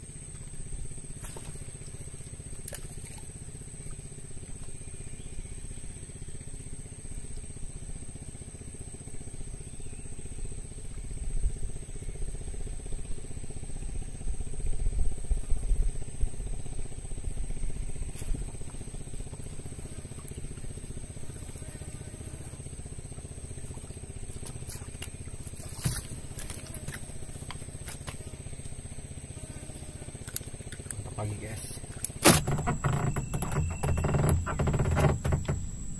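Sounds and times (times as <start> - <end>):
low rumble with buffeting: 0.0 - 35.9.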